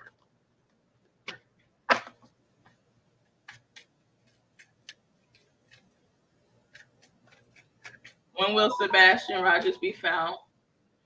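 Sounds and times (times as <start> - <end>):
cards being shuffled: 1.2 - 8.3.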